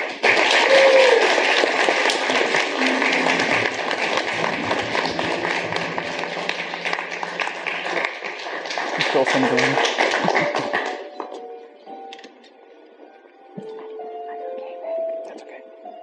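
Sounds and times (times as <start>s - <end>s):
guests applauding: 0.0s - 11.5s.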